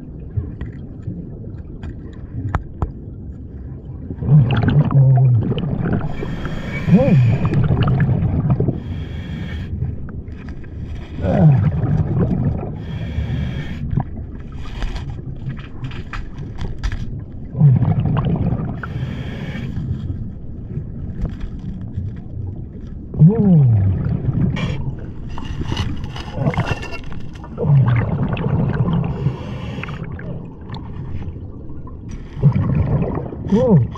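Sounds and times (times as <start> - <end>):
exhalation bubbling rumble: 3.8 - 9.0, 11.1 - 13.1, 17.4 - 19.1, 22.4 - 33.9.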